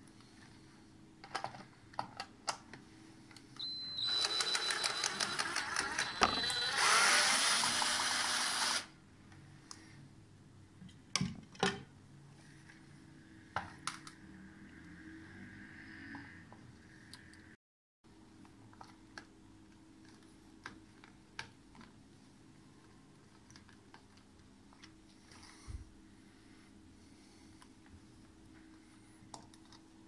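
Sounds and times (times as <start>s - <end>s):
drill motor whining: 3.6s - 8.9s.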